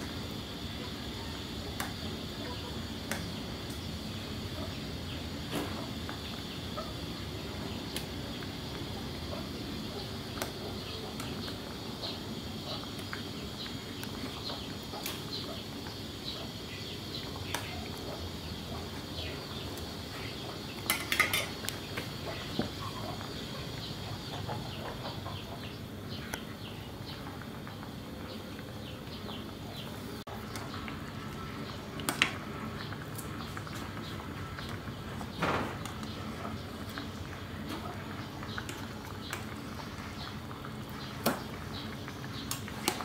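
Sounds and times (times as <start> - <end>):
soup bubbling: 26.4 - 43.0.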